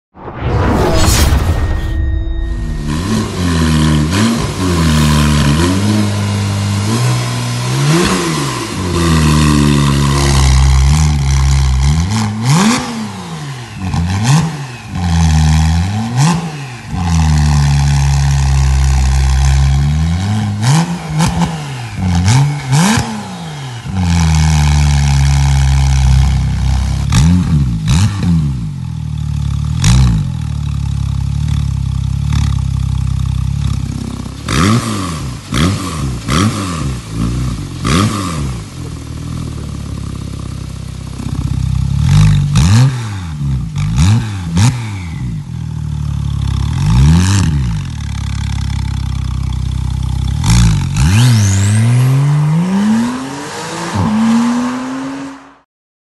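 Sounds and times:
car engine revving: 0:00.2 - 0:28.9, 0:31.9 - 0:55.6
car engine idling: 0:35.4 - 0:42.6, 0:47.8 - 0:50.9.

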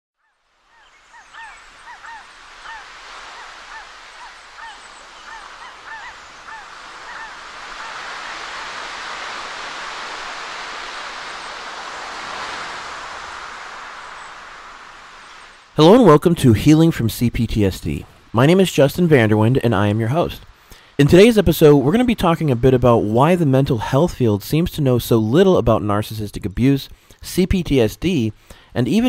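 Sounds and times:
honking bird calls: 0:00.7 - 0:08.7
rushing noise: 0:01.4 - 0:24.6.

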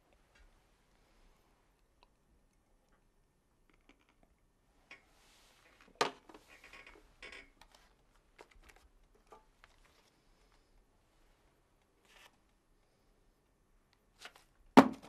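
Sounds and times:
rustling: 0:05.0 - 0:13.0.

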